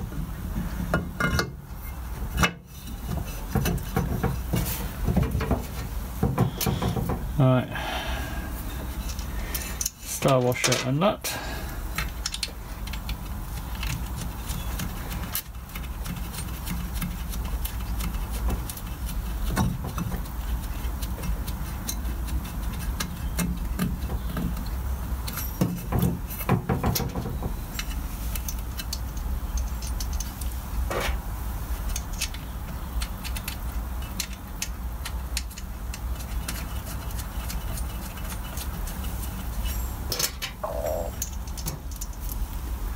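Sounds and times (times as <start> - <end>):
steady low hum: 0.0 - 25.5.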